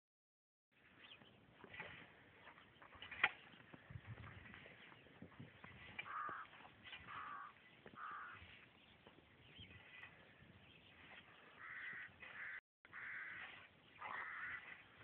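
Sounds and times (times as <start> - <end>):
bird calling: 4.7 - 15.0.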